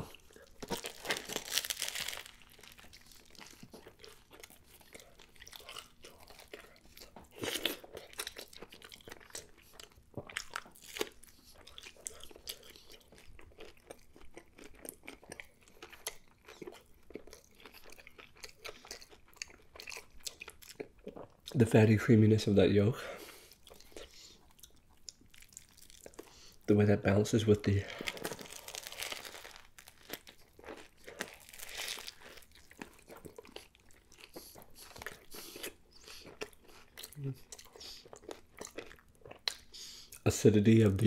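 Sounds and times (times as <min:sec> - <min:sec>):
crunchy bite into burger: 0:00.0 - 0:09.5, 0:28.0 - 0:39.7
wet chewing: 0:00.0 - 0:21.6, 0:23.2 - 0:26.7, 0:27.9 - 0:40.2.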